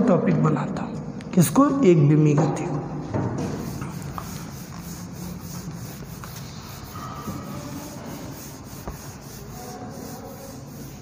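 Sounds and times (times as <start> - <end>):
duster rubbing on whiteboard: 3.3 - 11.0.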